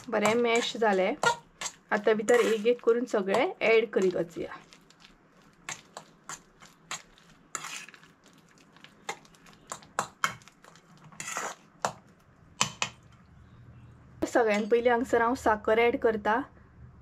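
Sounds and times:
metal spoon clinking in bowl: 14.5s - 14.9s.

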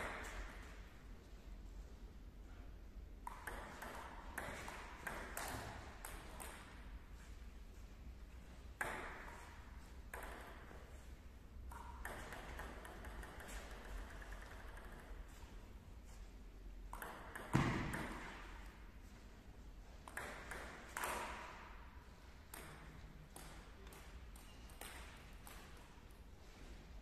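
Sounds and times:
table tennis ball clicking: 3.2s - 6.8s, 11.7s - 15.2s, 16.9s - 18.2s, 22.5s - 25.9s.

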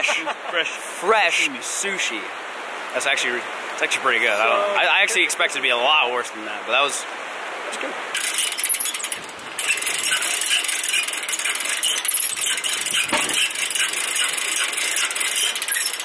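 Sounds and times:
river rushing: 0.0s - 15.8s
metal rattling and clinking: 8.2s - 16.0s.

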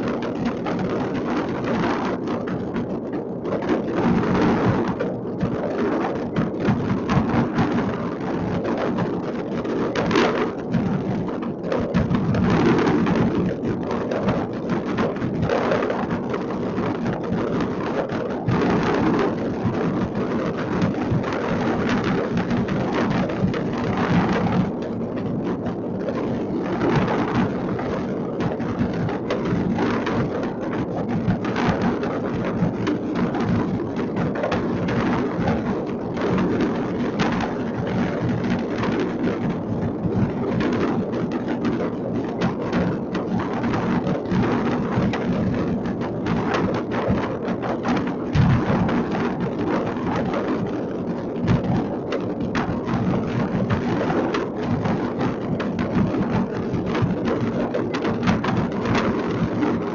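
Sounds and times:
distant fireworks crackling: 26.8s - 41.8s.

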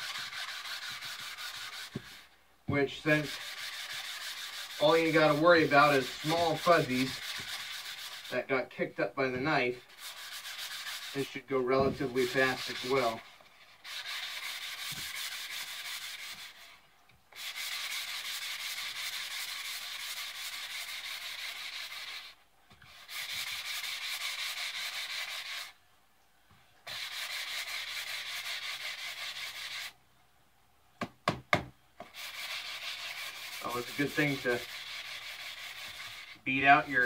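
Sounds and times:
sanding sponge scratching wood: 0.0s - 16.8s, 17.4s - 25.8s, 26.9s - 30.0s, 32.0s - 37.0s
sharp knocks: 31.0s - 31.8s.

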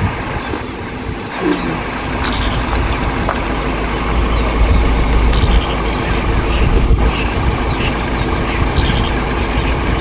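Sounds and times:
vehicle engine idling: 0.0s - 10.0s.

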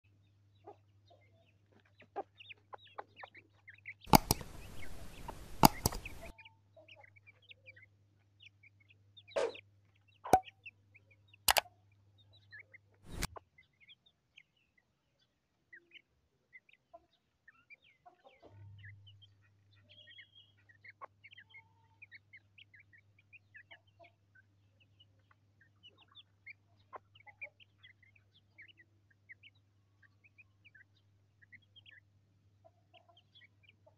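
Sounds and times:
chick peeps: 0.5s - 14.6s, 15.2s - 33.9s
sharp knocks: 4.1s - 6.3s
hen clucking: 4.1s - 7.1s.

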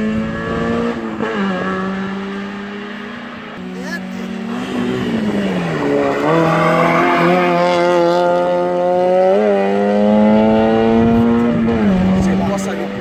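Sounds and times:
race car engine accelerating: 0.0s - 13.0s.

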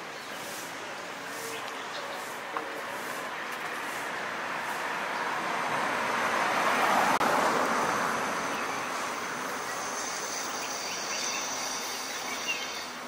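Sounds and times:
car driving past: 4.5s - 10.6s.

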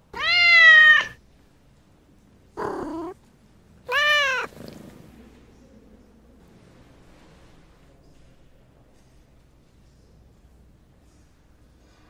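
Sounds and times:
cat meowing: 0.1s - 1.2s, 2.6s - 3.2s, 3.9s - 4.6s.

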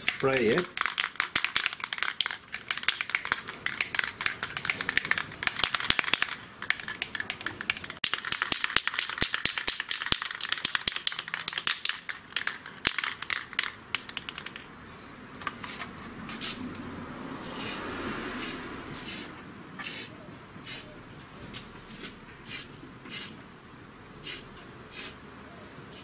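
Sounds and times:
spray can ball rattling: 0.0s - 14.7s.

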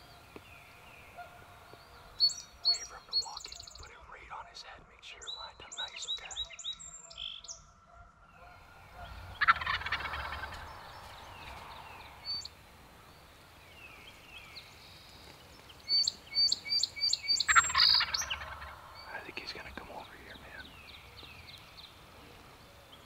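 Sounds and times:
turkey gobbling: 8.4s - 12.6s, 17.3s - 19.2s.

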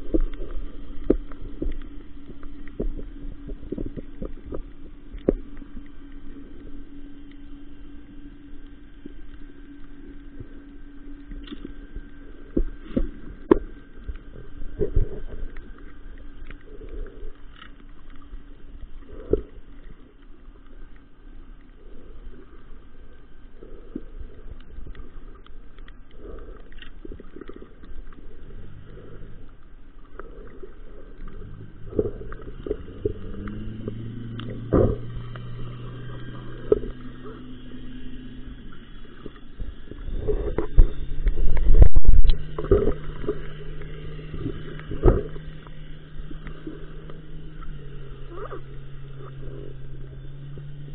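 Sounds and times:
underwater clicks and knocks: 0.0s - 6.2s, 12.5s - 16.6s, 31.2s - 35.6s, 39.2s - 47.8s
low steady hum: 0.0s - 50.9s
muffled underwater rumble: 0.0s - 50.9s
bumping and rumbling: 31.4s - 35.2s.

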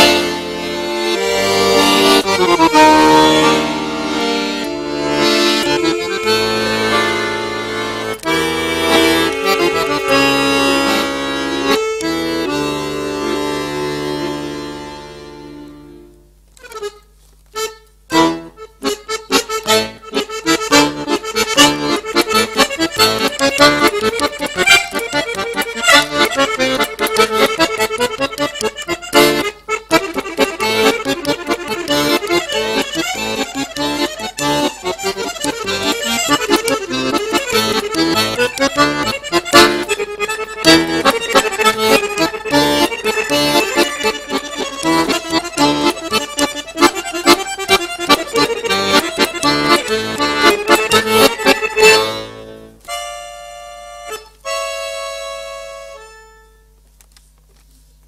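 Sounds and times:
accordion playing fast: 0.0s - 56.8s.

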